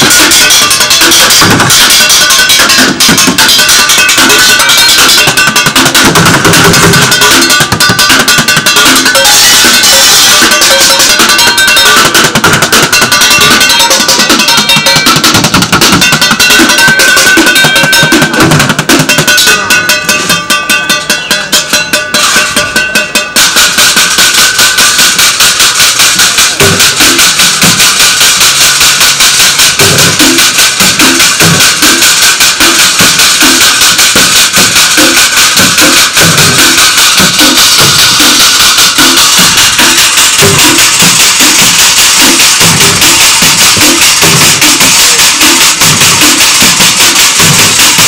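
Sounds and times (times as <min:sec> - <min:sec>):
sticks clanging on sheet metal: 0:00.0 - 0:48.0.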